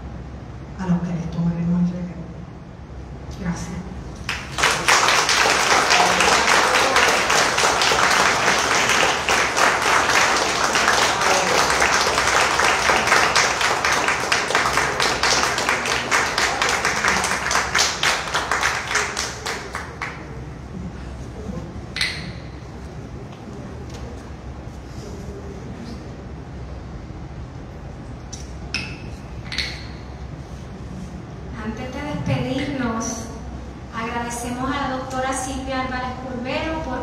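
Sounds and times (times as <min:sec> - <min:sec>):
small audience applauding: 0:04.2 - 0:20.5.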